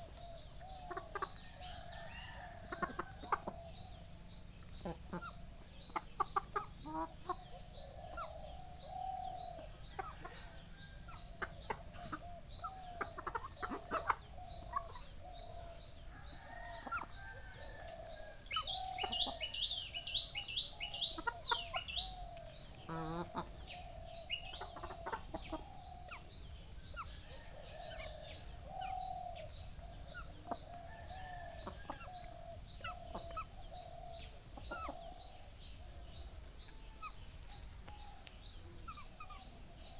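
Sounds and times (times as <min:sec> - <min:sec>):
small birds chirping: 0:00.0 - 0:39.9
hens clucking: 0:00.8 - 0:01.4, 0:02.0 - 0:03.7, 0:04.7 - 0:08.8, 0:09.6 - 0:15.2, 0:20.8 - 0:26.3, 0:34.4 - 0:35.2.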